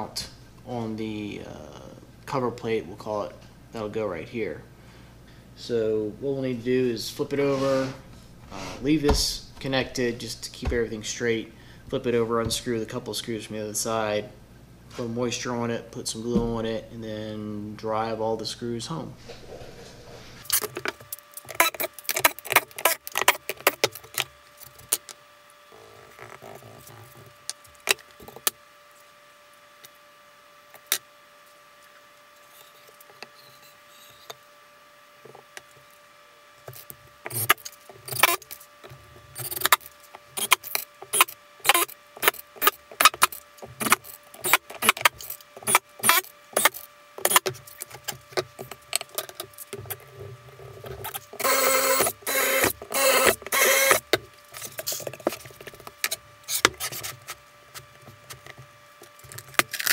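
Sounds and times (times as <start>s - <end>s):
impact driver bursts: 40.4s - 47.4s, 51.4s - 54.0s.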